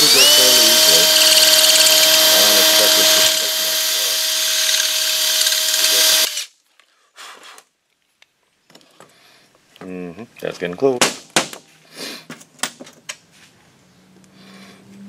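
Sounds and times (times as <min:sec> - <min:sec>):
electric drill whining: 0:00.0 - 0:06.5.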